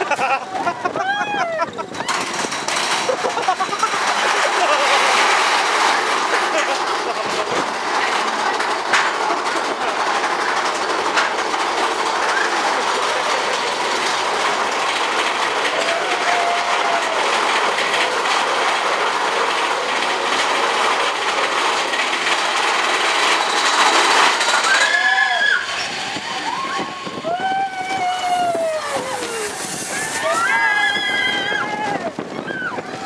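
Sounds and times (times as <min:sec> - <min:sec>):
roller coaster clattering on track: 0:00.0 - 0:33.0
sharp clacks: 0:02.0 - 0:26.2.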